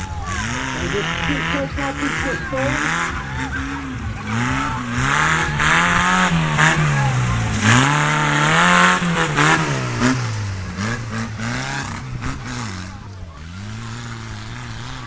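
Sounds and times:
tractor engine revving: 0:00.0 - 0:15.0.

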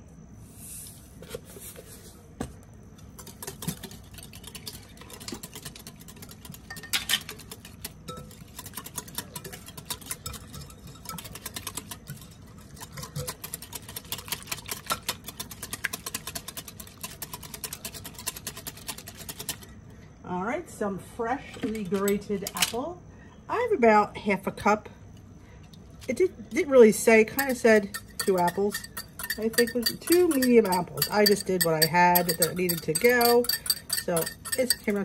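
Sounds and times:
whisk clicking against glass bowl: 0:03.2 - 0:19.7, 0:27.2 - 0:35.0.

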